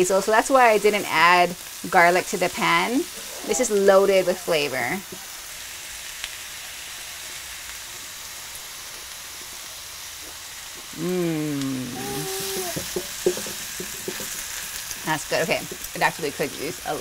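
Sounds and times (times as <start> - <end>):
food sizzling in a frying pan: 0.0 - 17.0
person saying mmm: 10.9 - 12.8.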